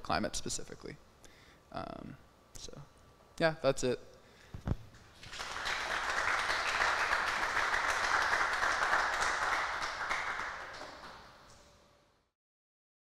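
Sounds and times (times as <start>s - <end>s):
audience applauding: 5.2s - 11.4s.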